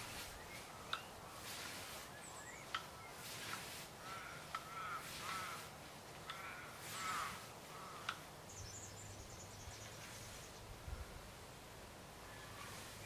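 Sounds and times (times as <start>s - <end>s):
bird calling: 0.0s - 5.7s, 6.3s - 10.6s
scythe swishing through grass: 0.0s - 8.3s, 12.4s - 13.0s.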